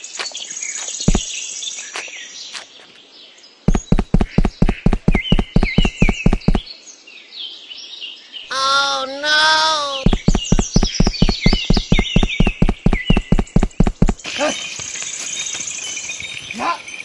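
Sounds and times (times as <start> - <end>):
birdsong chirping: 0.0 - 6.8, 8.3 - 16.6
cartoon footsteps: 0.2 - 1.3, 3.7 - 6.6, 8.5 - 14.3.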